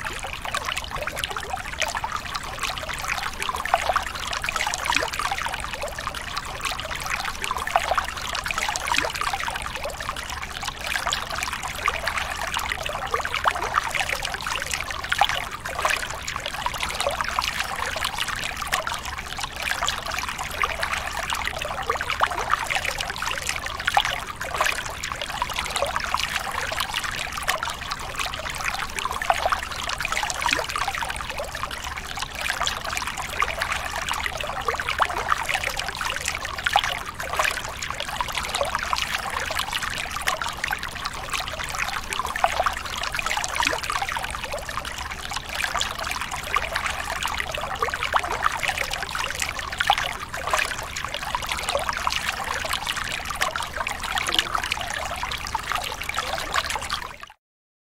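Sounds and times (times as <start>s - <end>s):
small water splashes: 0.0s - 57.3s
river water flowing: 16.9s - 56.8s.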